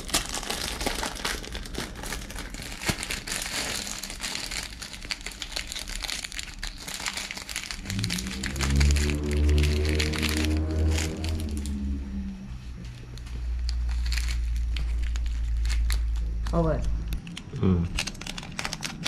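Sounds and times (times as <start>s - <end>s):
plastic wrapper crinkling: 0.0s - 19.0s
background music with low notes: 7.8s - 13.4s.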